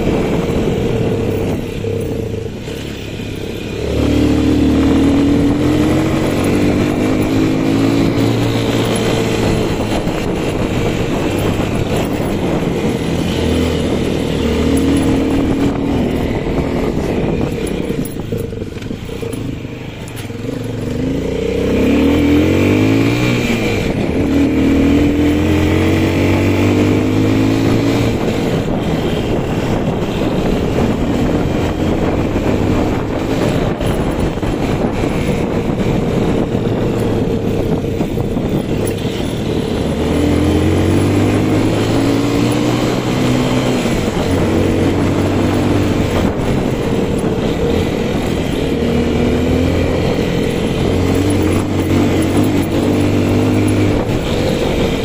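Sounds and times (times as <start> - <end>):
motorcycle engine running: 0.0 - 55.0
wind and road noise: 0.0 - 55.0.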